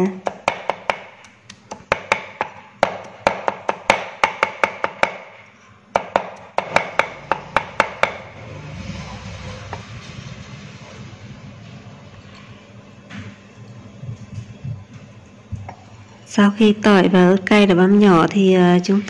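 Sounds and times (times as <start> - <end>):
cleaver chopping on wooden board: 0.2 - 5.4, 6.0 - 8.2.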